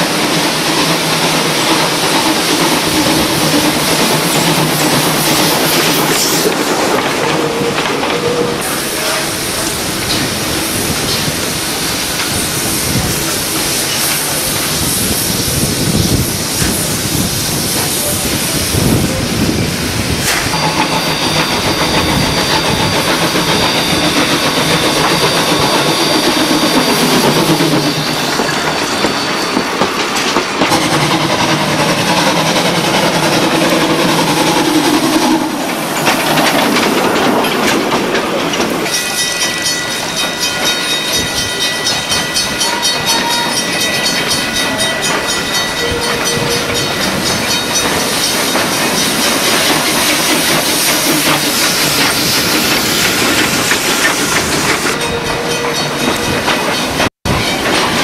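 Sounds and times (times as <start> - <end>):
steam hissing: 0.0 - 55.1
carriages clickety-clack on track: 0.0 - 58.0
steam locomotive working: 0.0 - 58.0
thin high squeal: 20.4 - 29.8.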